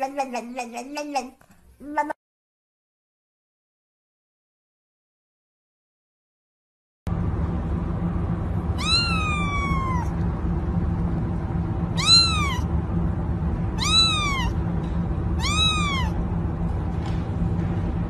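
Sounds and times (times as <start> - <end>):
kitten meowing: 8.8 - 10.1, 11.9 - 12.7, 13.8 - 14.6, 15.4 - 16.2.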